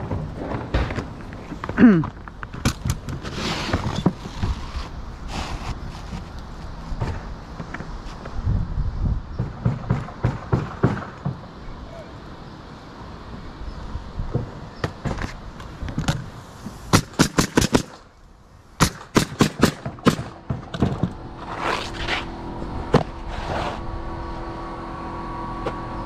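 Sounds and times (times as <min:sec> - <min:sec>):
roofing nailer firing: 0:16.9 - 0:18.0, 0:18.8 - 0:21.7
steady hum: 0:19.9 - 0:26.0.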